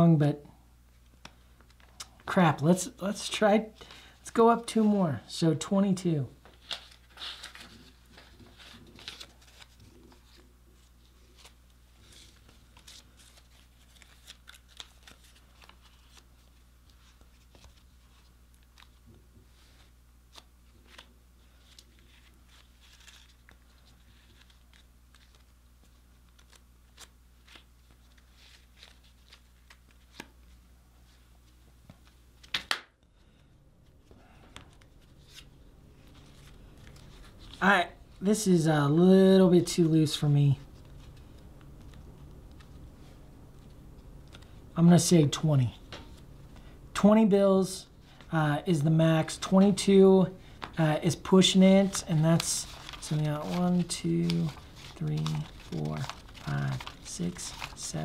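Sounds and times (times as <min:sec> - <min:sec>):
faint low hum: 0:00.0 - 0:58.0
paper banknotes rustling: 0:06.4 - 0:38.6, 0:39.6 - 0:45.1, 0:49.2 - 0:58.0.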